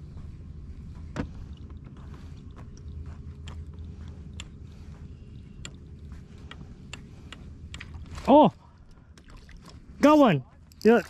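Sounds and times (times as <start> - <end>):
faint steady hum: 0.0 - 11.0
steady low rumble: 0.0 - 11.0
clicks and taps of fishing tackle: 6.5 - 8.1.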